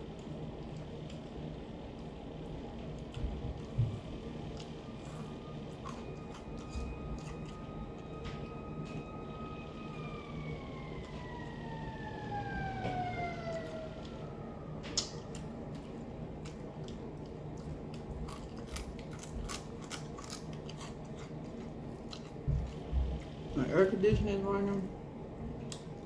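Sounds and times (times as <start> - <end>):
siren: 2.6 - 18.8, 21.5 - 25.4
crunching of fried food: 13.5 - 23.4.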